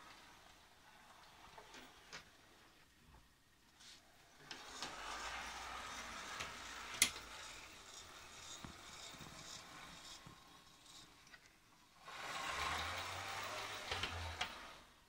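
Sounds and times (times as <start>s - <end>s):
model train motor whirring: 4.2s - 15.0s
wheels clicking over rails: 4.3s - 15.0s.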